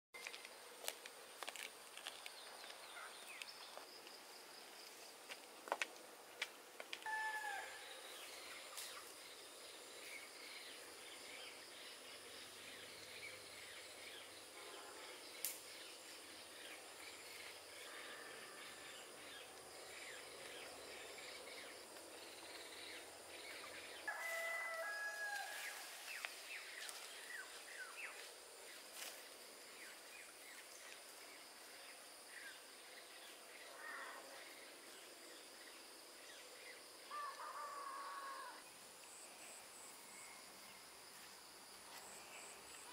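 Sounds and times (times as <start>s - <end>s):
longer bird call: 7.0s - 9.0s.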